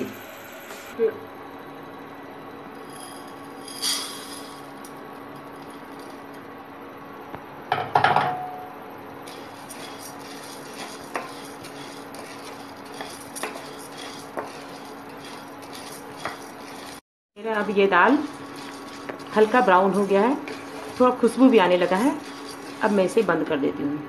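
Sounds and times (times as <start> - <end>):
induction cooktop hum: 0.0 - 24.0
dry lentils poured into a wok: 2.9 - 4.6
spatula scraping a pan: 9.2 - 23.4.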